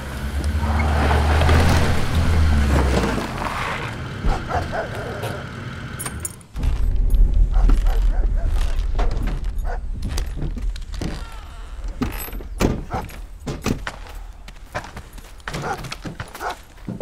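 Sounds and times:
truck engine rumble: 0.0 - 17.0
clunks and knocks: 4.1 - 17.0.

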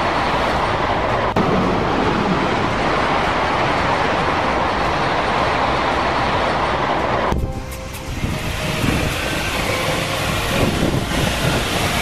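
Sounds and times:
high-speed train passing: 0.0 - 12.0.

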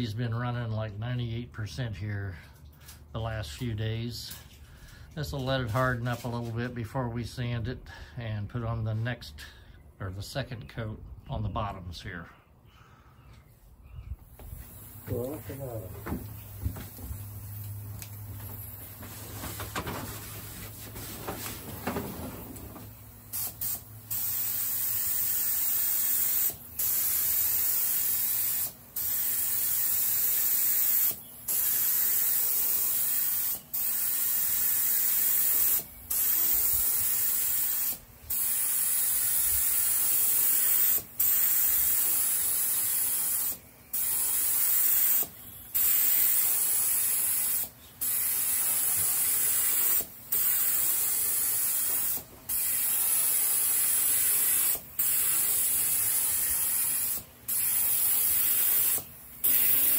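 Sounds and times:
quiet handling sounds: 13.3 - 23.0
spray gun hissing: 22.4 - 59.9.

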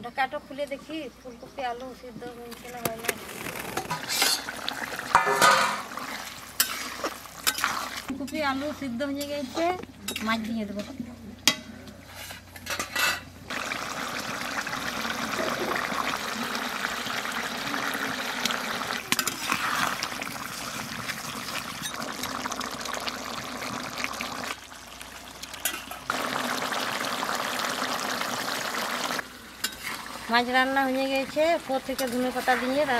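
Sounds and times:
curry bubbling in pan: 3.2 - 8.1, 13.5 - 30.3.

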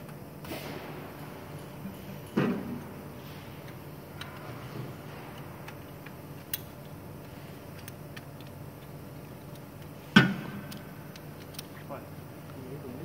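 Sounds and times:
machine low hum: 0.0 - 13.0.

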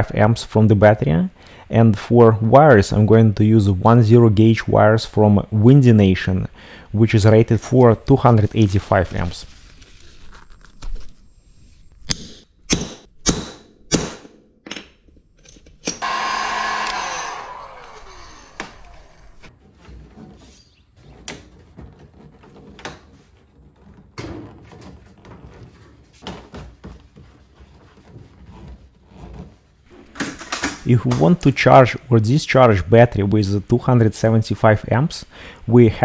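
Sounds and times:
small electric motor whine: 16.0 - 19.5.

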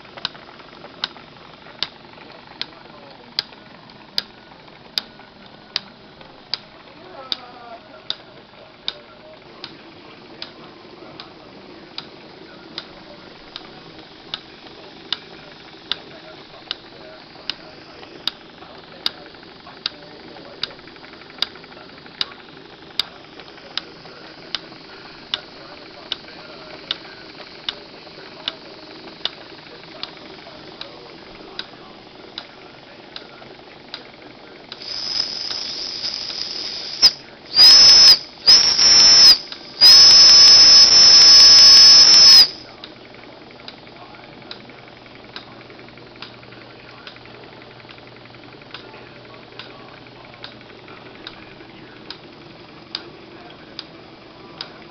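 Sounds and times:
faint mechanical whir: 0.0 - 54.9
steam whistle blasts: 34.8 - 42.6
steam hissing: 34.8 - 42.7
light regular clicking: 46.2 - 49.8.

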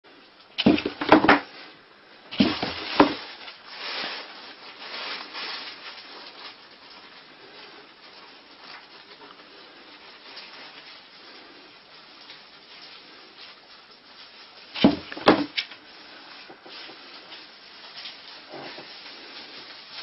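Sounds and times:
thuds on cardboard box: 0.6 - 1.4, 2.4 - 3.2, 14.8 - 15.5.

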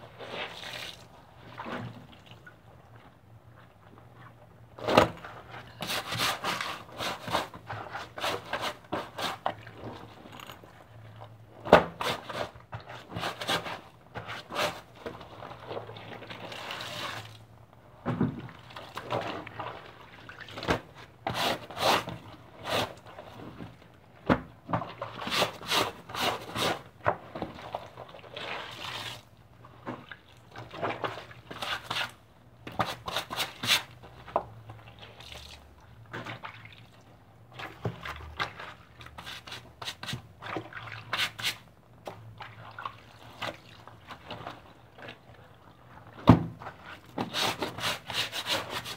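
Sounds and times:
water splashing and sloshing: 0.0 - 48.9.

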